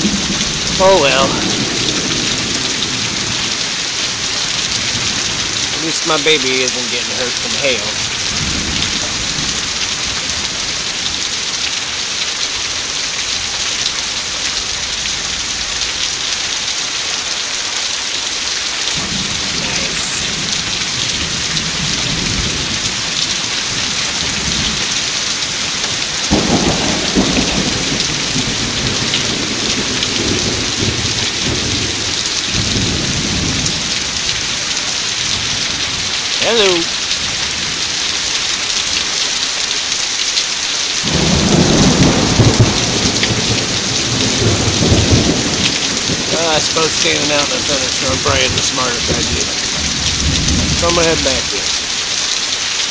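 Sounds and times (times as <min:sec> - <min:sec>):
thunder rumbling: 0:00.0 - 0:11.5, 0:18.9 - 0:37.8, 0:41.0 - 0:52.1
heavy rain falling: 0:00.0 - 0:52.9.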